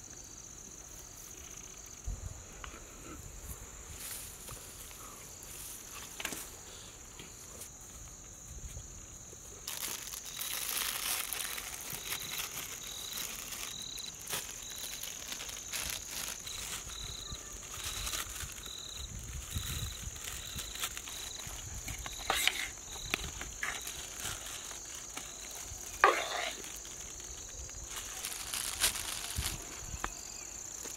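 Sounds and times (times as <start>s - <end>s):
crickets chirring: 0.0s - 30.9s
insect chirping: 0.0s - 30.9s
rice scooped from steel pots: 26.0s - 26.6s.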